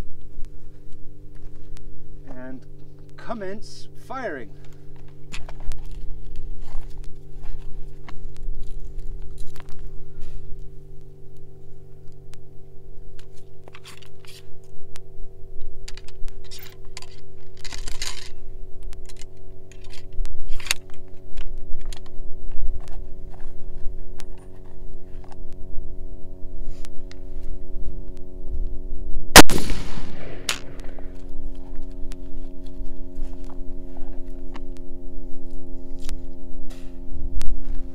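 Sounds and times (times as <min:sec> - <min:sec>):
low hum: 0:00.0 - 0:37.9
ramrod scraping in rifle barrel: 0:13.2 - 0:14.6.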